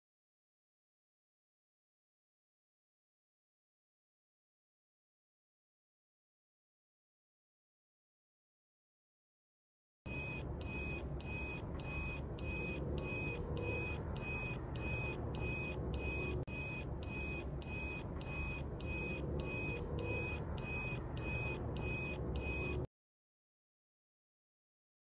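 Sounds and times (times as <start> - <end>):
low background hum: 10.1 - 22.9
short high electronic beeps: 10.1 - 22.9.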